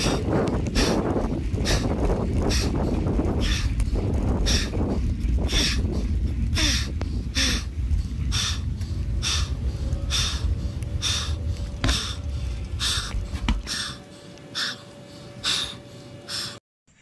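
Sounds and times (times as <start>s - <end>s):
low rumble: 0.0s - 16.5s
person breathing hard: 0.0s - 16.6s.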